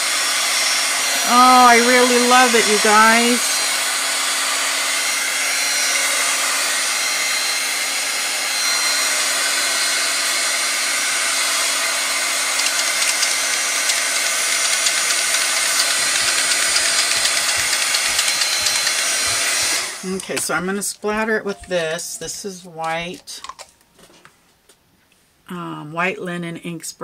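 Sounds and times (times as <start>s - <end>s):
hot-air dryer blowing: 0.0s - 20.4s.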